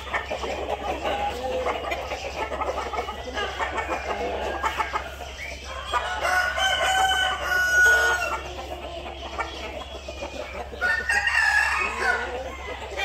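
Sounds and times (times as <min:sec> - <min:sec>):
rooster crowing: 0:06.0 - 0:08.4, 0:10.8 - 0:13.0.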